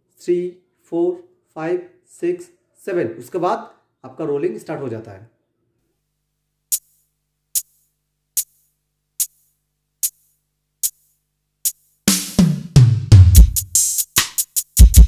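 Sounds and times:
sharp high electronic ticks: 6.7s - 11.9s.

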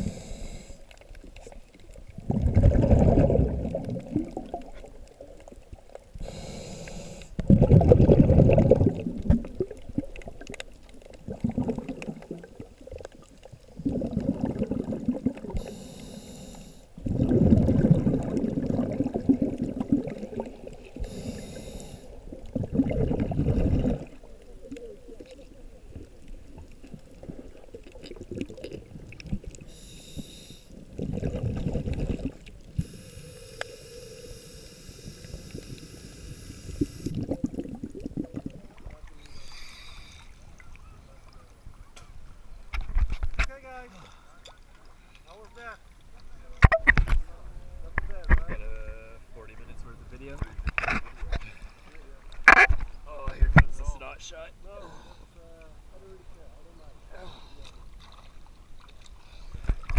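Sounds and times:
hissing regulator inhale: 0.0s - 1.0s, 6.2s - 7.4s, 15.5s - 17.0s, 21.0s - 22.2s, 29.6s - 30.8s, 32.8s - 37.2s, 39.2s - 40.4s
rumble of exhaled bubbles: 0.0s - 6.4s, 7.3s - 15.8s, 16.9s - 29.7s, 30.8s - 32.9s, 35.1s - 39.3s.

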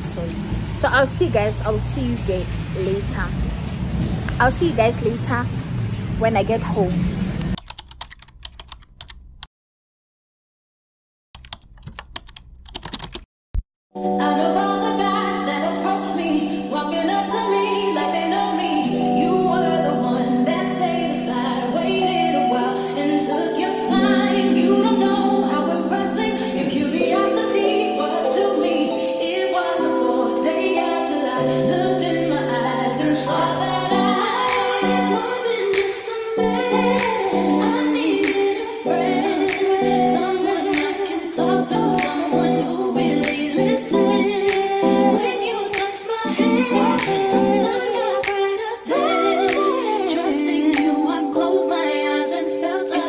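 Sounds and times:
music with singing: 14.0s - 53.0s.

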